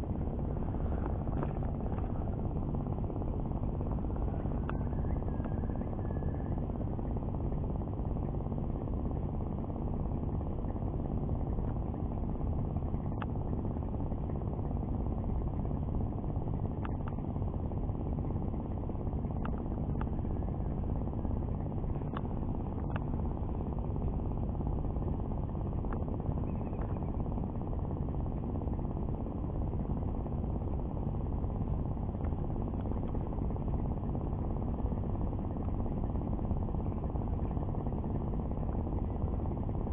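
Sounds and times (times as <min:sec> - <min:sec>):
low engine rumble and hum: 0:00.0 - 0:39.9
faint clicks: 0:19.4 - 0:20.2.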